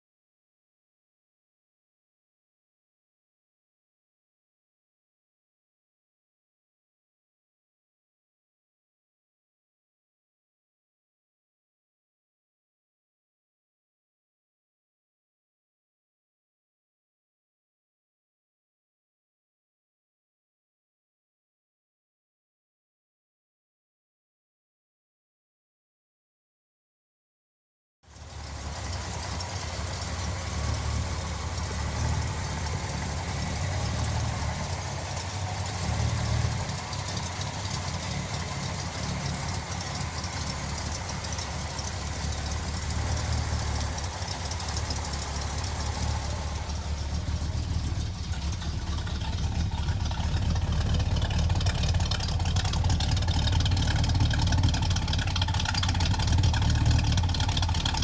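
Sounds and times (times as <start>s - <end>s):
car engine idling: 28.1s - 58.0s.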